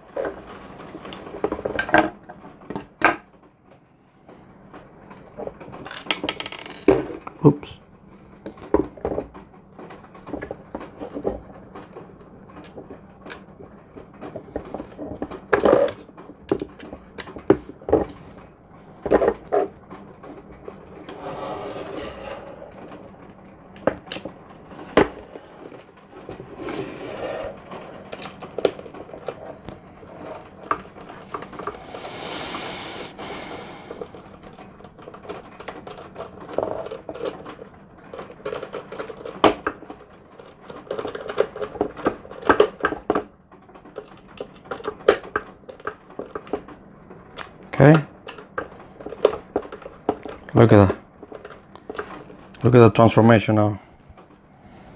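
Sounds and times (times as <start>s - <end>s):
brief scraping noises: 31.8s - 34.0s.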